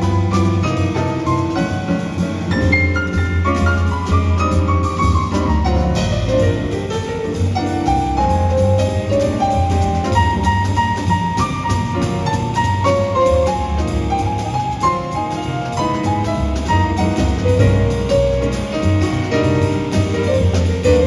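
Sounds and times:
drum kit with cymbal strokes: 0:00.0 - 0:21.0
jazz piano solo: 0:00.0 - 0:21.0
pizzicato double bass: 0:00.0 - 0:21.0.

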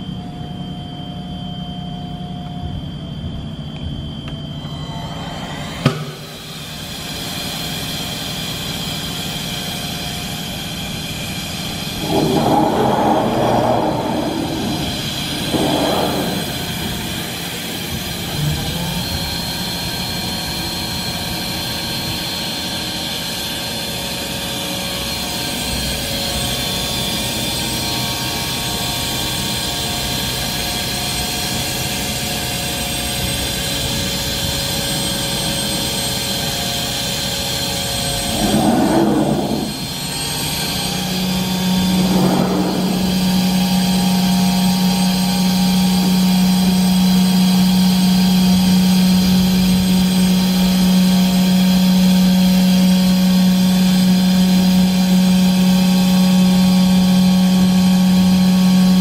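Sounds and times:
industrial machinery humming: 0:00.0 - 0:23.5, 0:24.5 - 0:59.0
motor spinning up to a whine: 0:01.0 - 0:22.5, 0:28.2 - 0:59.0
loud noisy bursts: 0:11.0 - 0:19.8, 0:37.8 - 0:46.3.

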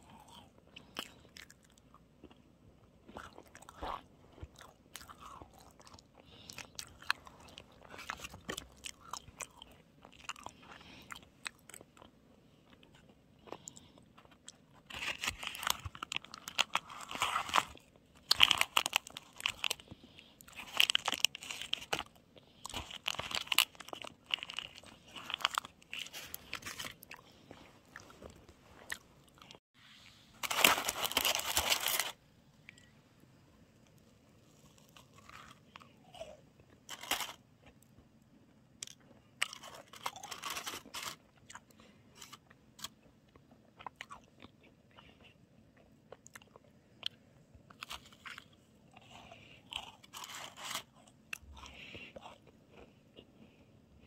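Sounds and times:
person crunching and chewing: 0:00.0 - 0:29.6, 0:30.4 - 0:32.9, 0:33.8 - 0:37.9, 0:38.6 - 0:53.7.

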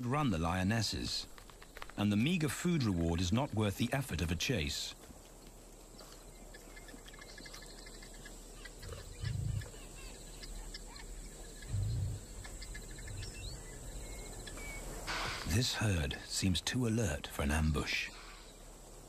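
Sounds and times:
high insect hum: 0:00.0 - 0:19.0
bird chirps: 0:06.0 - 0:15.6.

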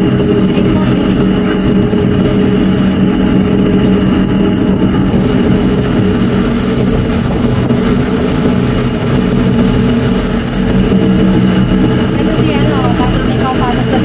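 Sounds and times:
ship engines droning: 0:00.0 - 0:14.0.

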